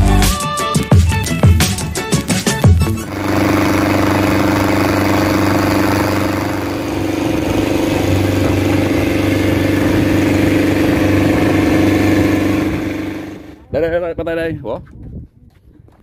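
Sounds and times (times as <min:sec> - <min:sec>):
boat engine droning: 0:02.6 - 0:13.6
churning wake rushing: 0:03.0 - 0:13.6.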